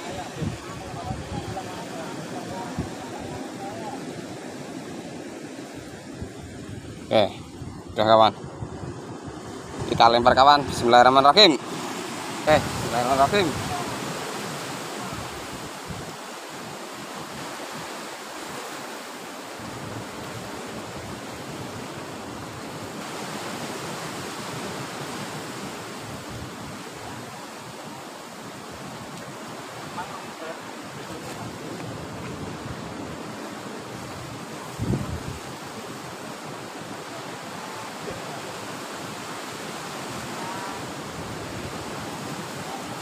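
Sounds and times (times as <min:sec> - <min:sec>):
wind buffeting microphone: 0:00.0 - 0:03.6, 0:05.8 - 0:10.9, 0:12.2 - 0:14.1, 0:31.0 - 0:36.0
sea surf: 0:00.0 - 0:43.0.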